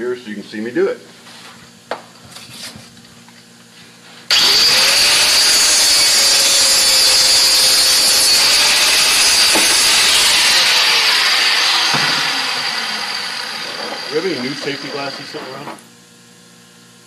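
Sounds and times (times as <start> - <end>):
power tool whining: 4.3 - 15.8.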